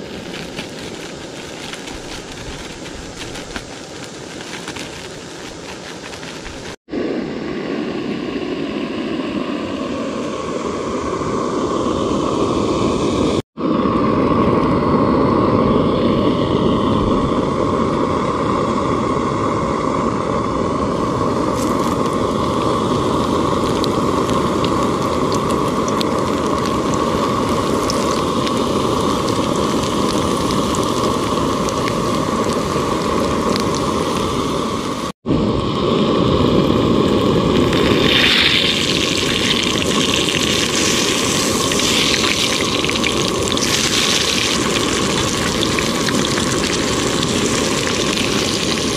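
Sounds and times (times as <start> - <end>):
fish frying in hot oil: 0.0 - 6.8, 21.4 - 35.1, 36.4 - 48.9.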